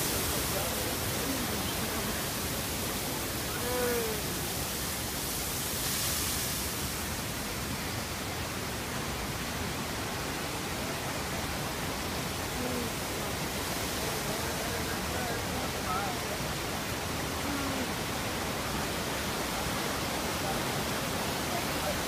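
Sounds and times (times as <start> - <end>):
faint voices: 0.0 - 4.8, 12.3 - 22.0
waterfall rushing: 0.0 - 22.0.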